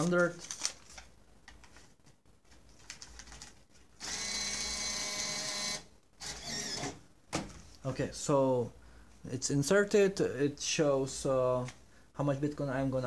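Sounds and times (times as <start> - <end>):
banknote acceptor motor whir: 4.0 - 6.9.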